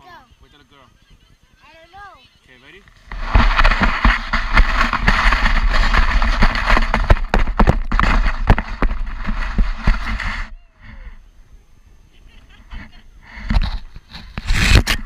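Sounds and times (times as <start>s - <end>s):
sled knocking on bumps: 2.9s - 10.5s
sled scraping over snow: 2.9s - 11.1s, 12.7s - 15.0s.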